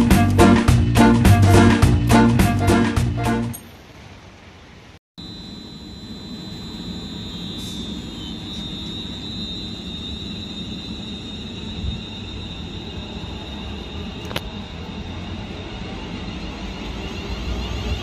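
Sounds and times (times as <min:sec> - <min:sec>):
train high whine: 0:05.2 - 0:18.0.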